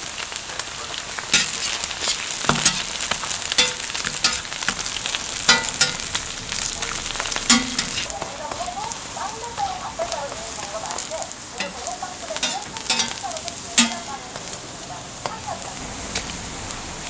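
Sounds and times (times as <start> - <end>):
patties sizzling on a griddle: 0.0 - 17.0
spatula scraping metal griddle: 1.3 - 8.2, 11.6 - 13.2, 13.8 - 14.2.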